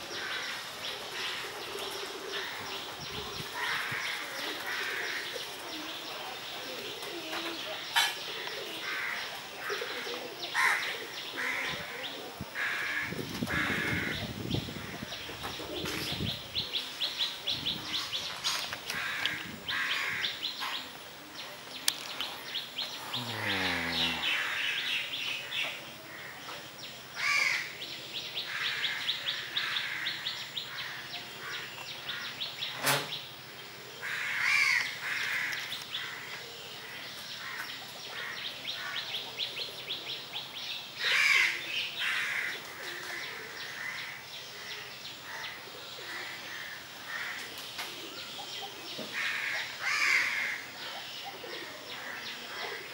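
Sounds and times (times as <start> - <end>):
birds chirping and trilling: 0.0 - 52.9
crows cawing: 8.8 - 11.8, 12.6 - 14.2, 18.9 - 20.4, 23.0 - 25.0, 27.2 - 27.7, 28.5 - 32.3, 34.0 - 36.4, 41.0 - 44.2, 46.1 - 47.5, 49.1 - 50.7.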